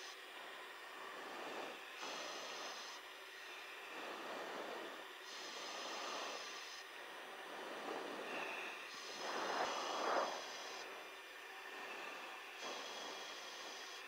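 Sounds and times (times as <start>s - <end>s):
soft rushing swells: 1.1s - 14.0s
intercom hiss: 8.2s - 11.1s.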